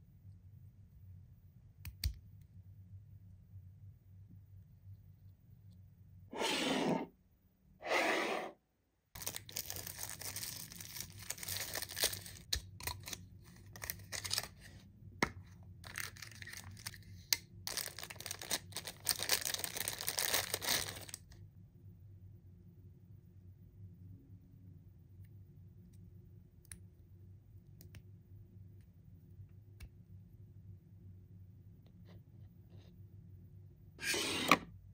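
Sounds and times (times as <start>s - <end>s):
packaging tearing: 9.2s - 13.2s, 17.7s - 21.2s
packaging crinkling and rustling: 9.2s - 14.6s, 15.8s - 17.0s, 17.7s - 21.2s.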